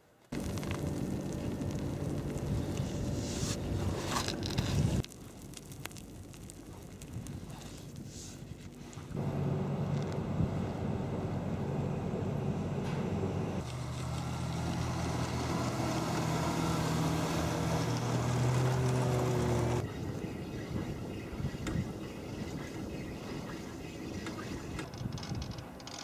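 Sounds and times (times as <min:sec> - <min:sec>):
diesel engine drone: 0:00.4 - 0:04.6, 0:09.1 - 0:21.2
wind noise: 0:00.4 - 0:05.0, 0:19.8 - 0:25.8.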